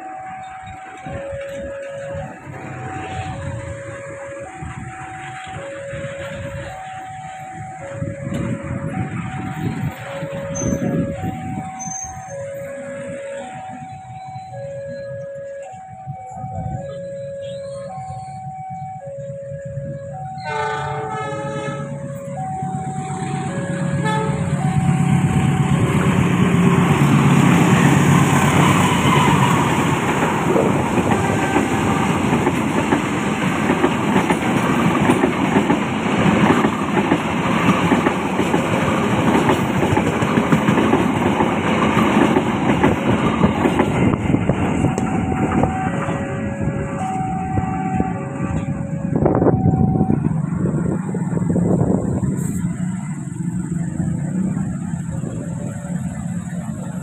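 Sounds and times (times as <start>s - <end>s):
locomotive horn: 0.0s - 33.8s, 44.0s - 50.4s
train passing on rails: 0.0s - 57.0s
two-tone crossing alarm: 0.0s - 57.0s.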